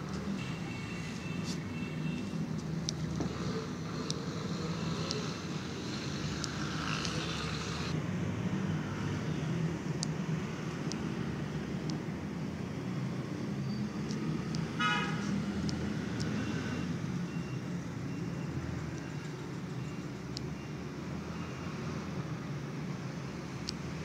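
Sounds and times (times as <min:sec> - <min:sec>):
road traffic rumble: 0:00.0 - 0:24.0
faint high ticks: 0:05.9 - 0:07.4.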